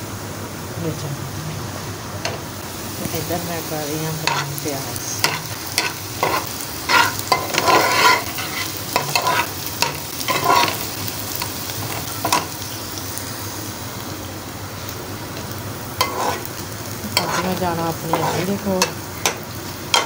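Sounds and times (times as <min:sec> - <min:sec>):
onions sizzling in oil: 0:00.0 - 0:20.0
spoon scraping metal pan: 0:04.2 - 0:04.6, 0:05.2 - 0:10.8, 0:16.0 - 0:16.5, 0:17.2 - 0:20.0.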